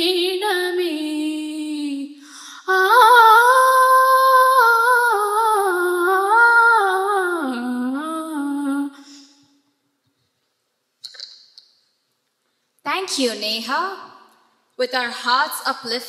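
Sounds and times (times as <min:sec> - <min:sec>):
young woman singing: 0:00.0 - 0:09.4.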